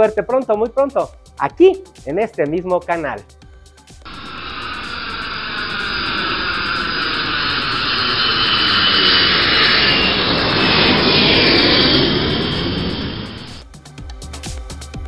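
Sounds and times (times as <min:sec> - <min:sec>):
jet airliner passing overhead: 0:04.1 - 0:13.6.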